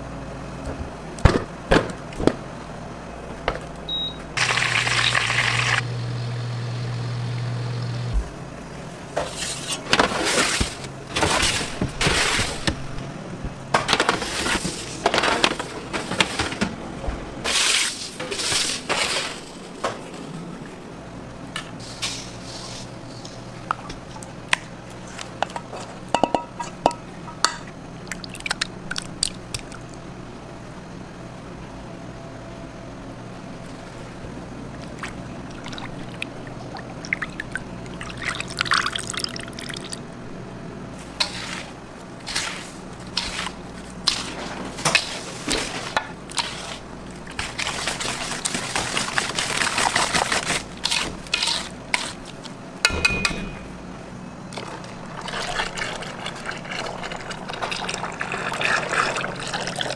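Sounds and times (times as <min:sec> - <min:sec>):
batter whisked in bowl: 0:42.3 - 0:52.4
low hum: 0:52.8 - 0:54.8.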